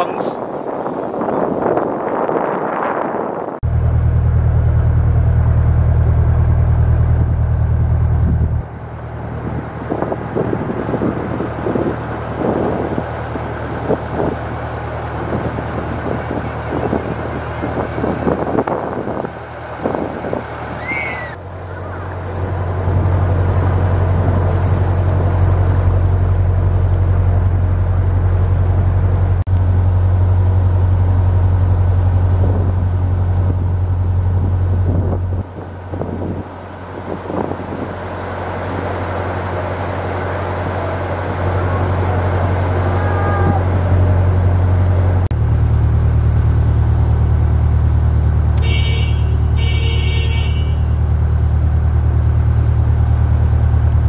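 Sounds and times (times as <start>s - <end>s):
wind buffeting microphone: 0.0s - 5.2s, 5.8s - 29.4s, 32.1s - 45.3s
boat engine running: 0.0s - 54.0s.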